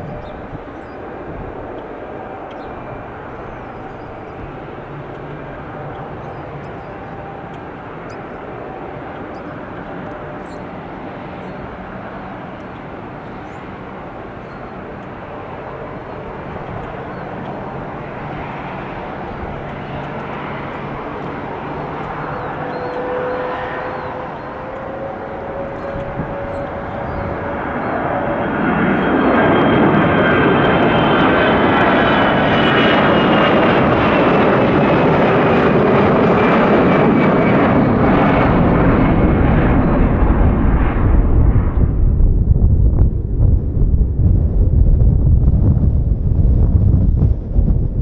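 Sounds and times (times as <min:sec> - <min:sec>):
jet engines: 0:00.0 - 0:48.0.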